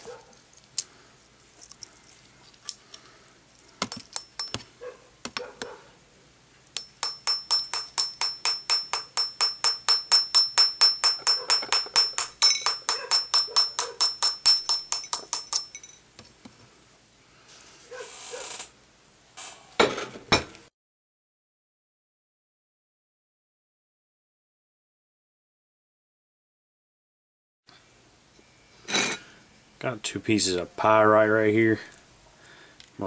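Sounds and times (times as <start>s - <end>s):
metal tool tapping crystals: 3.7s - 5.5s, 6.7s - 16.5s.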